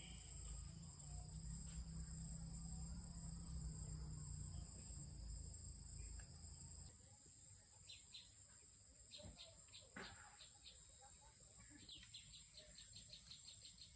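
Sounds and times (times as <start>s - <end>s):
crickets chirring: 0.0s - 6.9s.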